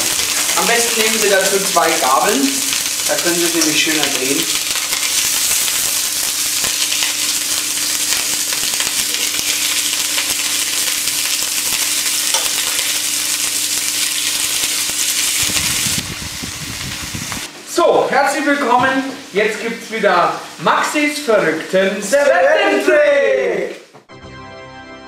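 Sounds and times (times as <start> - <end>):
meat sizzling in a frying pan: 0.0 - 17.5.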